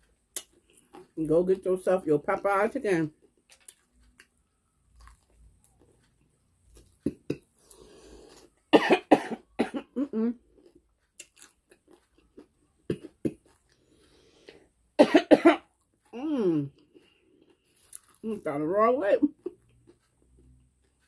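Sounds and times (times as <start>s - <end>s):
faint chewing: 0.0s - 1.3s, 3.1s - 8.7s, 10.3s - 14.8s, 15.6s - 18.5s, 19.3s - 21.0s
woman coughing: 8.8s - 10.2s, 15.0s - 15.6s.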